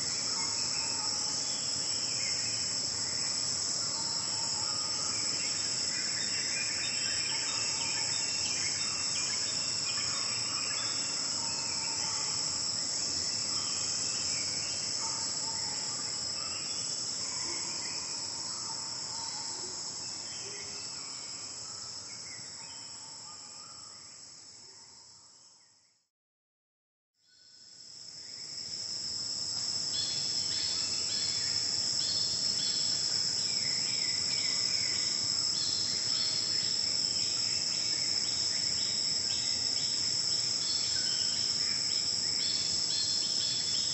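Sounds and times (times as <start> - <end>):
high-pitched insect chorus: 0.0 - 25.6, 27.2 - 43.9.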